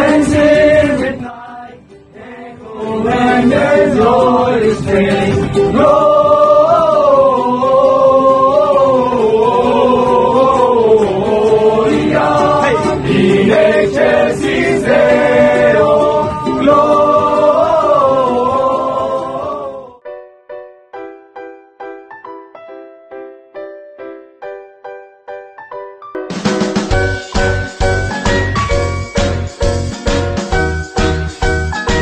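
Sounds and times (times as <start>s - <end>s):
men singing a cappella: 0.0s - 20.0s
soft piano music: 20.0s - 32.0s.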